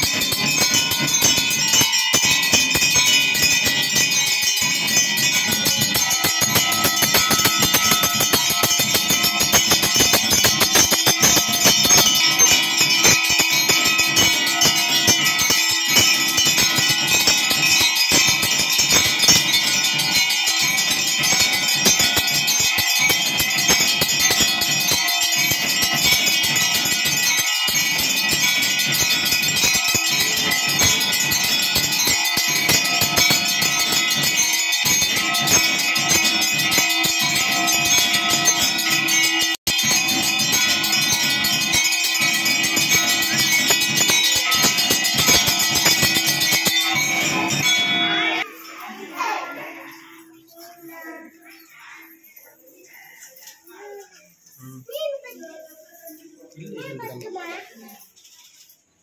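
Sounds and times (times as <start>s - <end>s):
bells ringing rapidly: 0.0s - 59.0s.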